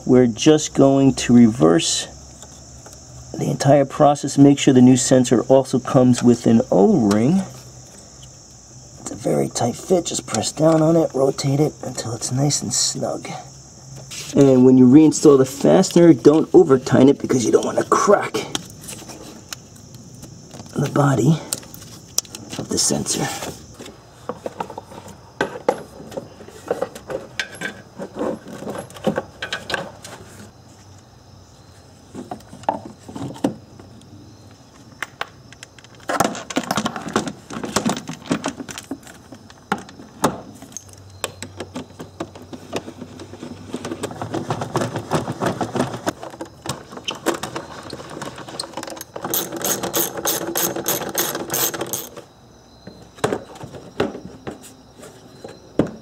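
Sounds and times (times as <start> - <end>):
plastic parts knocking and rattling: 35.0 - 52.2, 52.9 - 54.6
ratchet wrench clicking: 49.3 - 52.2.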